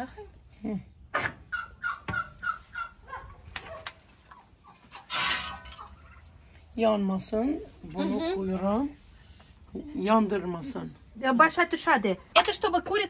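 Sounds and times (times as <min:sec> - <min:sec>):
chickens clucking: 0:01.1 - 0:06.5.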